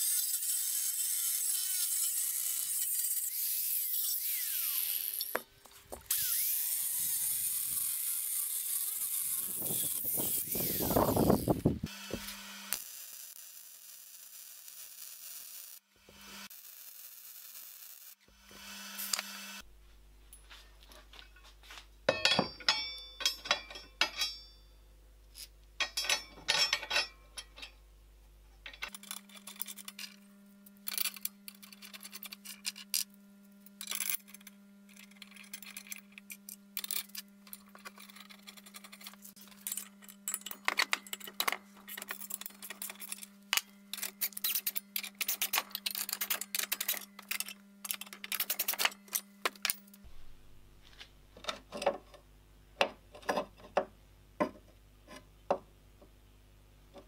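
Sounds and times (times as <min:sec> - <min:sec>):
metallic clinks and knocks: 0:22.1 - 0:24.7, 0:25.8 - 0:27.8
ringing clank of steel plate: 0:22.1 - 0:24.7.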